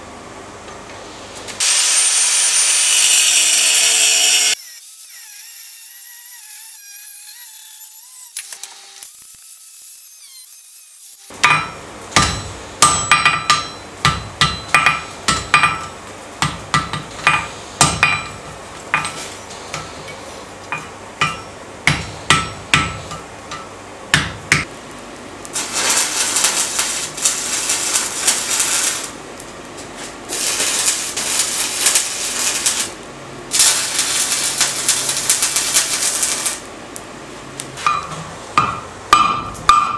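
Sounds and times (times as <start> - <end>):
electric welding hiss: 1.5 - 11.4, 25.4 - 29.2, 30.3 - 36.7
hammer striking steel on anvil: 11.3 - 24.7, 37.8 - 39.9.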